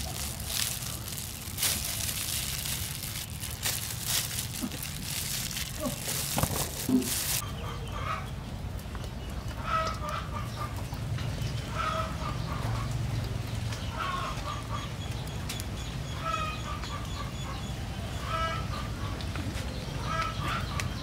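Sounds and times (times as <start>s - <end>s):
chickens clucking: 0.0s - 8.3s, 9.3s - 13.0s.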